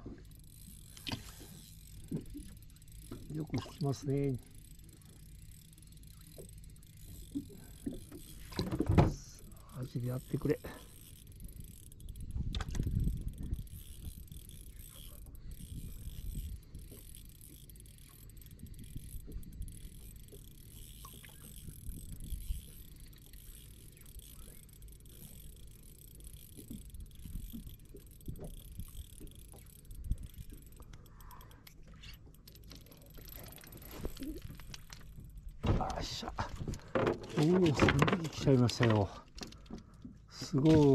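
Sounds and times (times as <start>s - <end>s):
fishing reel clicking: 0.0s - 40.9s
wind on microphone: 12.2s - 14.2s, 15.3s - 16.9s.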